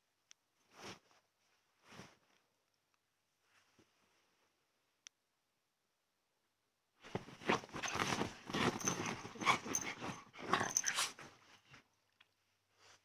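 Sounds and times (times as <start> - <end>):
small dog growling playfully: 7.8 - 11.2.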